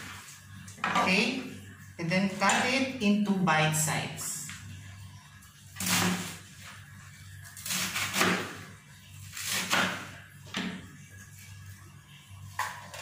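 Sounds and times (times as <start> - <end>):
knife slicing cabbage on cutting board: 5.8 - 6.4, 7.6 - 8.6, 9.3 - 10.1.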